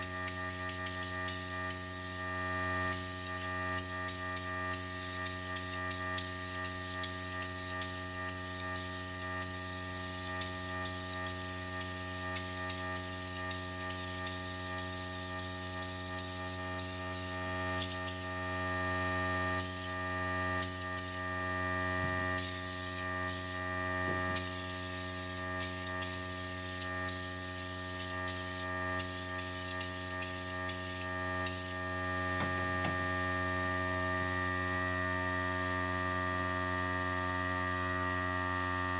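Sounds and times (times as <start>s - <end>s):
spray gun hissing: 0.0s - 2.2s, 2.9s - 18.3s, 19.6s - 20.0s, 20.6s - 21.2s, 22.4s - 23.6s, 24.4s - 31.8s
steady electrical hum: 0.0s - 38.9s.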